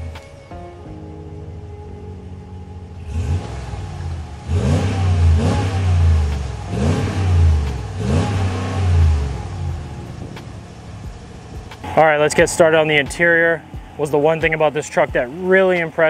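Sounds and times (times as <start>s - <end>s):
car engine idling: 0.0s - 16.0s
car engine starting: 0.0s - 16.0s
car engine revving: 1.6s - 16.0s.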